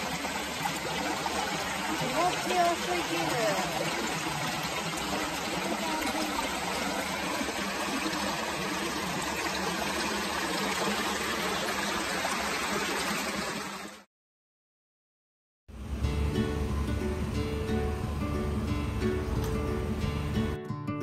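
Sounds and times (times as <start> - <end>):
stream running over rocks: 0.0 - 14.1.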